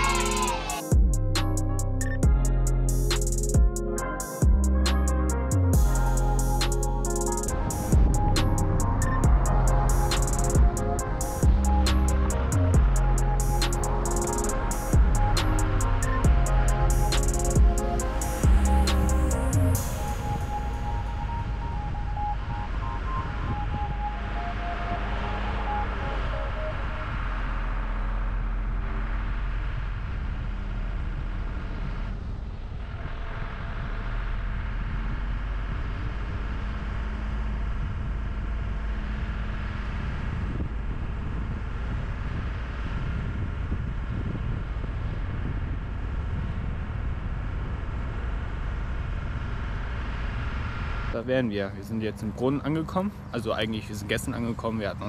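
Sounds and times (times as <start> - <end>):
music: 0.0 - 29.1
van engine and tyre rumble: 0.0 - 55.0.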